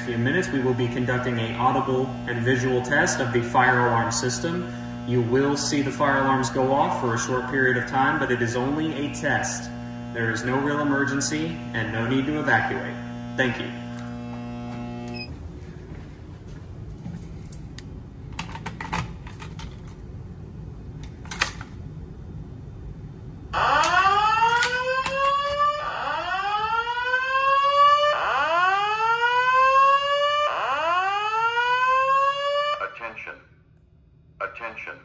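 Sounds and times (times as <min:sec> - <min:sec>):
fire alarm whoop tone: 0:23.6 - 0:32.8.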